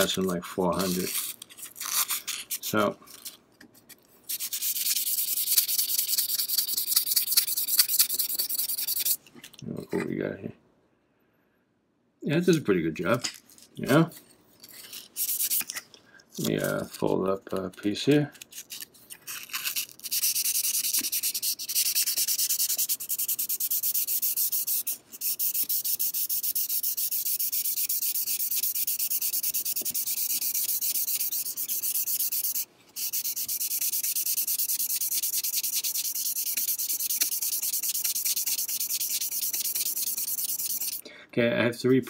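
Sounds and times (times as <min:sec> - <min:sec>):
sandpaper scratching steel blade: 0:04.3 - 0:09.2, 0:14.7 - 0:15.8, 0:18.4 - 0:41.0.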